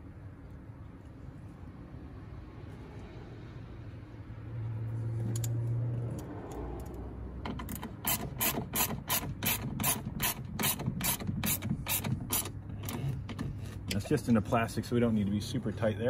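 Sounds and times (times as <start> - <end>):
hand ratchet clicking: 7.6 - 14.0.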